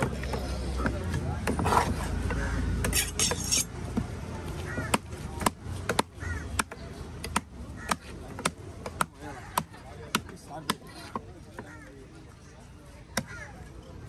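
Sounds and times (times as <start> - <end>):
cleaver chopping fish on wood: 3.9 - 11.7.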